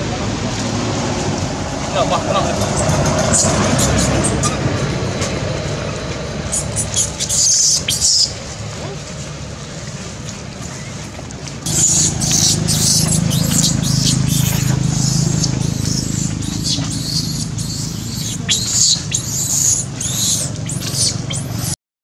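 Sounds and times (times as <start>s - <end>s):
steady low hum: 0.0s - 21.8s
baby monkey screaming: 6.5s - 8.4s, 11.7s - 21.8s.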